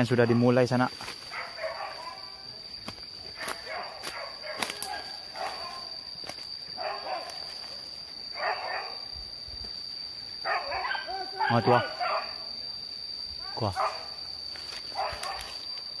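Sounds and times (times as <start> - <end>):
dogs barking and yelping: 1.3 - 2.4, 3.3 - 5.9, 6.8 - 7.4, 8.3 - 9.0, 10.4 - 12.4, 13.8 - 14.1, 14.9 - 15.7
twigs snapping underfoot: 2.8 - 5.6, 14.6 - 15.9.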